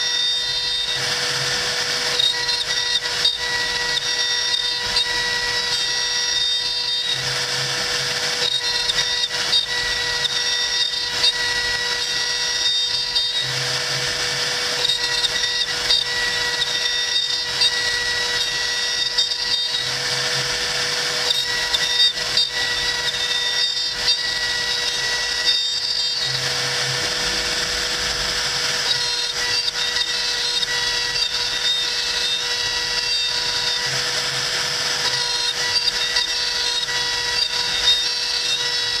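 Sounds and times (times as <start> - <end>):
router bit cutting wood: 0.0 - 39.0
router spindle whine: 0.0 - 39.0.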